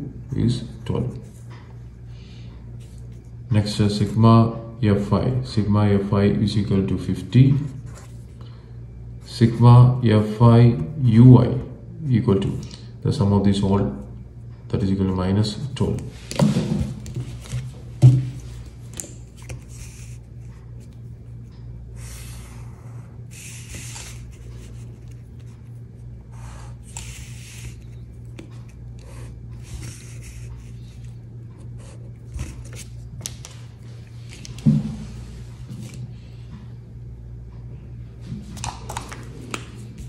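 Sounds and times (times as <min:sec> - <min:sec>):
low electrical hum: 0:00.0 - 0:40.0
paper rustling and sliding: 0:16.1 - 0:20.5.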